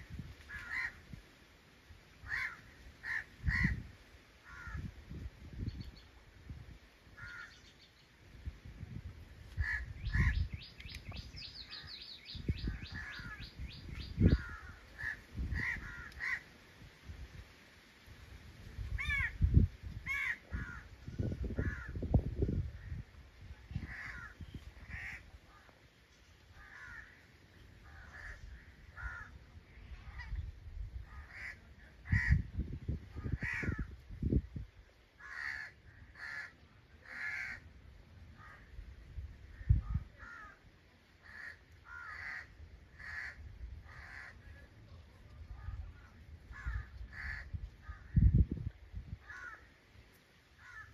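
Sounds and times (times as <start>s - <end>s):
crows cawing: 0.5s - 1.1s, 2.2s - 3.8s, 4.4s - 4.9s, 7.2s - 7.6s, 9.6s - 10.5s, 12.6s - 13.6s, 14.2s - 16.5s, 19.0s - 19.4s, 20.1s - 22.2s, 23.8s - 25.7s, 26.5s - 29.4s, 31.0s - 32.5s, 33.2s - 34.0s, 35.2s - 37.7s, 40.2s - 44.4s, 46.5s - 48.3s, 49.2s - 49.8s, 50.6s - 50.9s.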